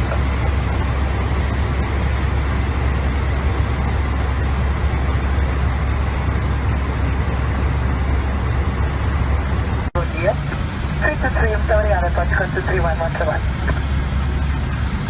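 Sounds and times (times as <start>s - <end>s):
airliner cockpit rushing noise: 0.0s - 15.0s.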